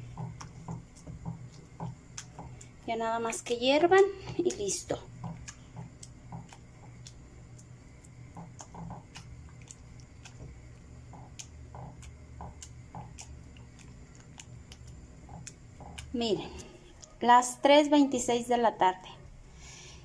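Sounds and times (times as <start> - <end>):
masher squishing beans: 0.0 - 17.5
small pops and clicks: 4.4 - 16.2.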